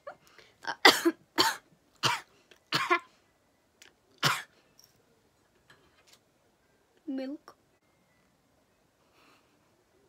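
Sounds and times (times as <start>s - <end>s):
woman coughing: 0.7s - 3.1s, 4.2s - 4.5s.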